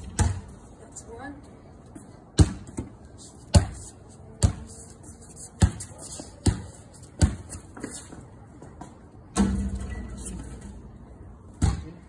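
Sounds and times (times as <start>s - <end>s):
basketball bouncing on concrete: 0.0s - 0.6s, 2.3s - 3.8s, 4.4s - 4.7s, 5.6s - 8.2s, 11.5s - 12.0s.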